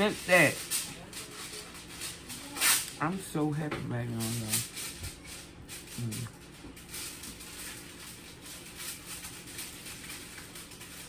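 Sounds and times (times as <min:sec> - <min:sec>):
person humming: 0:06.0 - 0:06.4.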